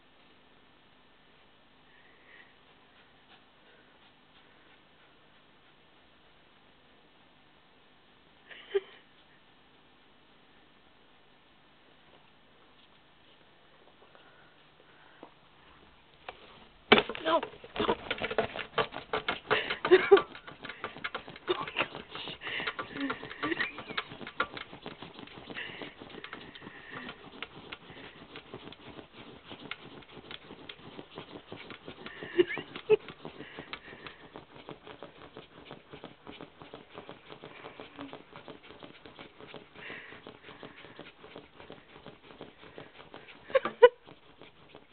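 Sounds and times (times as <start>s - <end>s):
dog claws scratching plastic: 16.3s - 44.9s
dog sniffing: 16.3s - 44.9s.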